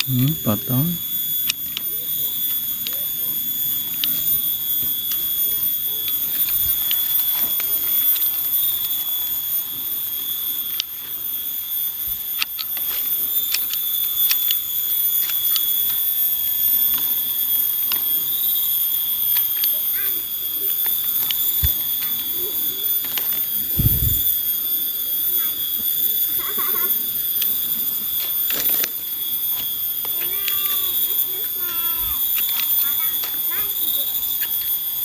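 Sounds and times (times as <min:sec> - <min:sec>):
sharp clicks: 0:00.0 - 0:00.5, 0:03.9 - 0:05.4, 0:12.2 - 0:16.1, 0:20.7 - 0:22.3, 0:27.3 - 0:34.8
cicadas droning: 0:00.0 - 0:35.0.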